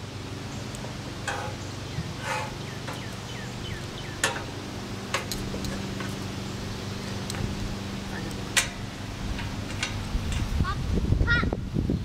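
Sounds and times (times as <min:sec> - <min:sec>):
steady low hum: 0:00.0 - 0:12.0
steel tube frame clicks and taps: 0:04.2 - 0:04.5, 0:05.1 - 0:06.2, 0:08.5 - 0:10.5.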